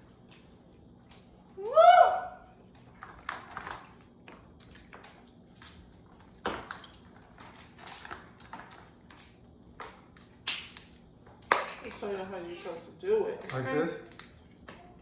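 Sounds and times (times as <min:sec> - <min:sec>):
crab shells cracking: 0:04.6 - 0:11.5, 0:13.4 - 0:14.6.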